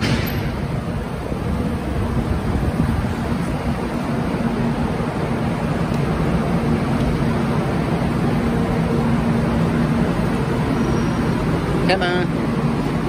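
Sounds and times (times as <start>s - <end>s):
engine hum: 0.0s - 13.0s
street traffic noise: 0.0s - 13.0s
wind rumble on microphone: 0.6s - 4.4s.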